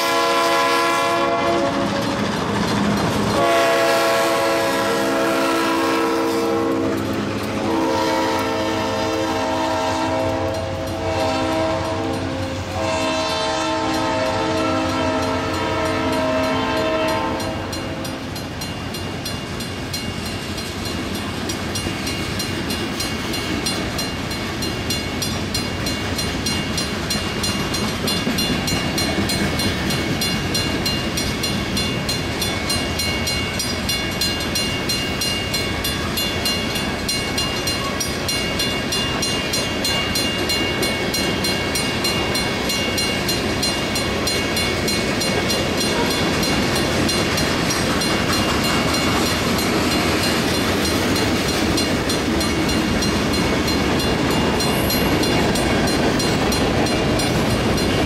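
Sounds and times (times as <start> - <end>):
locomotive horn: 0.0 - 2.2, 3.3 - 18.3, 45.8 - 46.5
wheels clattering on rails: 1.3 - 58.0
freight cars rumbling: 1.6 - 3.5.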